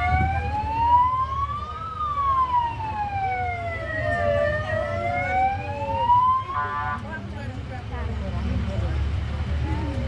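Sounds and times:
wailing siren: 0.0s - 7.1s.

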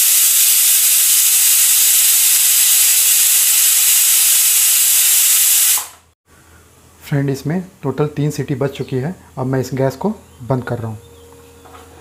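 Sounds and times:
pressure cooker steam hiss: 0.0s - 6.1s.

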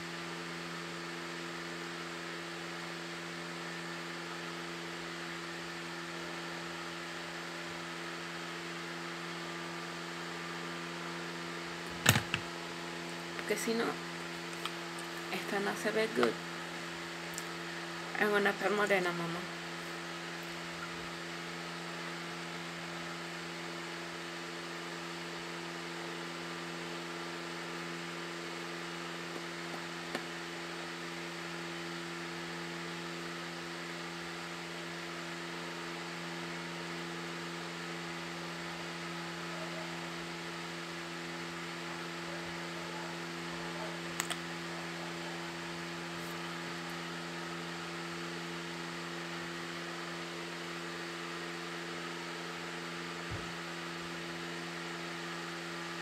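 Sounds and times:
steady background hum: 11.6s - 22.9s.

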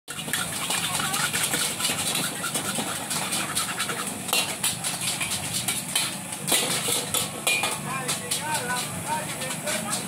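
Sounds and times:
metal spatula clanking on wok: 4.3s - 10.0s.

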